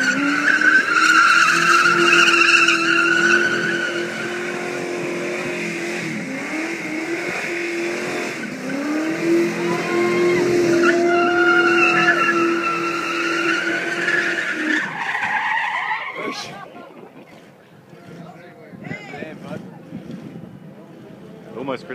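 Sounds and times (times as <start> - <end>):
tyres squealing: 0.0 - 4.5, 9.5 - 16.6
car engine revving high: 0.0 - 15.0.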